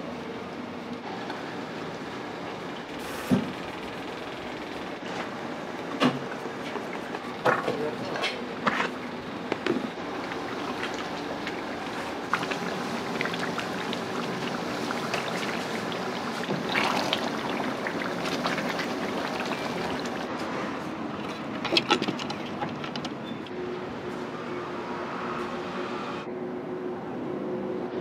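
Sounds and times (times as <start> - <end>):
sauce boiling and sizzling: 10.0 - 20.3.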